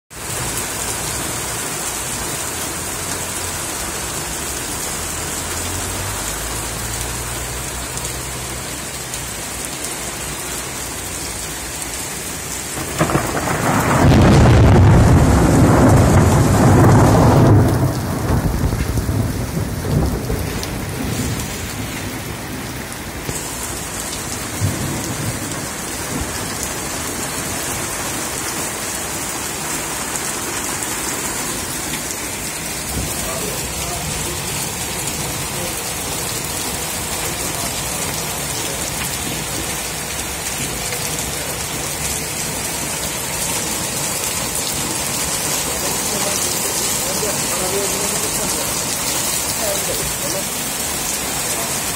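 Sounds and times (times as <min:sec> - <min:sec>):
heavy rain on street and cars: 0:00.1 - 0:51.9
thunder clap and rumble: 0:12.7 - 0:27.9, 0:32.7 - 0:42.8.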